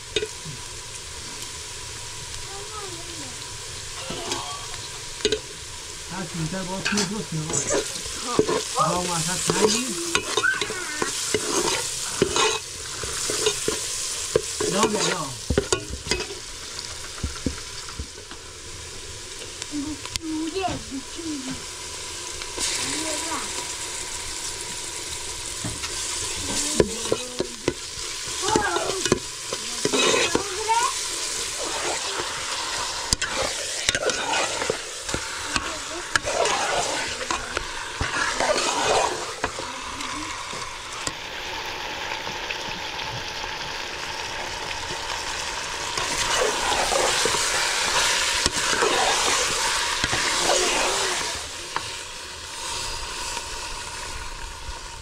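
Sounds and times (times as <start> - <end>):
food sizzling in a pan: 0.0 - 55.0
scraping strokes in a pan: 6.2 - 17.9, 24.7 - 43.6, 45.4 - 52.0.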